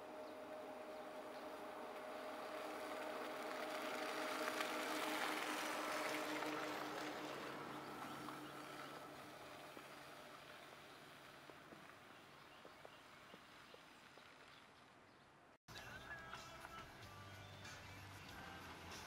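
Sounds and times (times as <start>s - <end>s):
car tyres hissing on snow: 1.6s - 11.5s.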